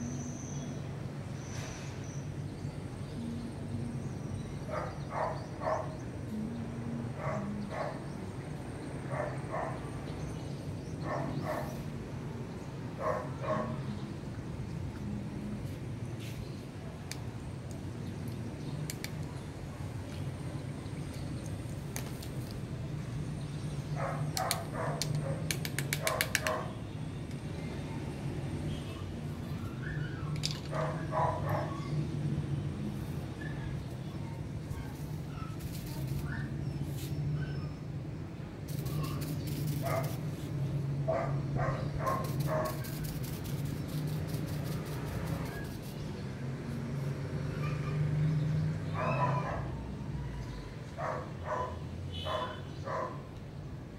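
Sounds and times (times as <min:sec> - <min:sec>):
dog barking: 0:04.7 - 0:06.0, 0:07.2 - 0:08.0, 0:09.1 - 0:09.8, 0:11.0 - 0:11.7, 0:13.0 - 0:13.8, 0:24.0 - 0:25.4, 0:30.7 - 0:31.9, 0:39.8 - 0:40.2, 0:41.1 - 0:42.8, 0:48.9 - 0:49.8, 0:51.0 - 0:53.3
fast sharp clicks: 0:24.3 - 0:26.8, 0:38.7 - 0:40.2, 0:42.1 - 0:46.0.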